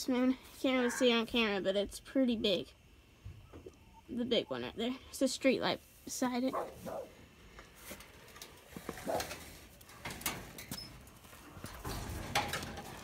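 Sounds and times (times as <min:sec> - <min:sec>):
chickens shuffling and knocking: 0:07.8 - 0:13.0.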